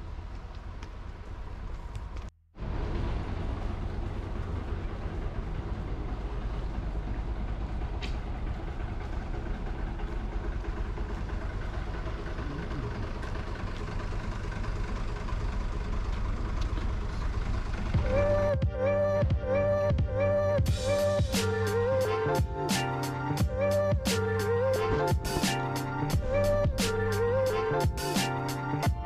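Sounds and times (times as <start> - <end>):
car engine and road noise: 0.0 - 29.0
music with repeated notes: 18.0 - 29.0.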